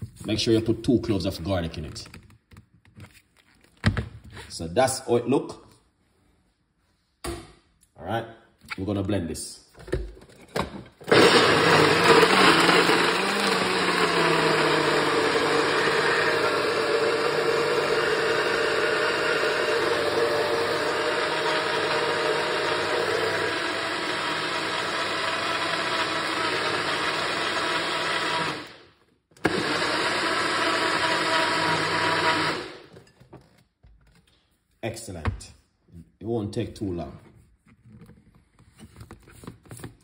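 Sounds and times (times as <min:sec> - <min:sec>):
blender motor blending fruit: 0:11.0 - 0:28.8, 0:29.4 - 0:32.9.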